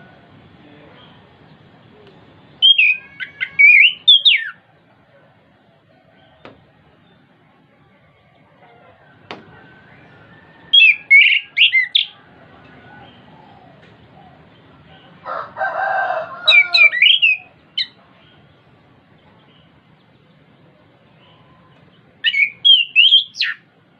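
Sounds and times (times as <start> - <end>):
thrush singing whistled notes: 2.5 - 4.6, 9.6 - 12.2, 16.5 - 18.0, 22.2 - 23.7
harsh rasping bird chatter: 2.6 - 4.6.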